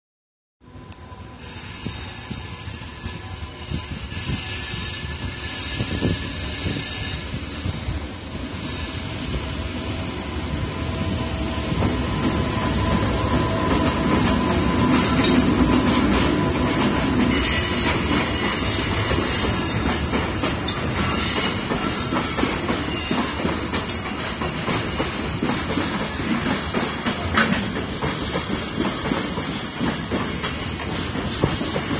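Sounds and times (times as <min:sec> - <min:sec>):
high squealing wheels: 0:01.1 - 0:07.7, 0:08.5 - 0:31.9
train wheels clattering over rail joints: 0:13.7 - 0:31.9.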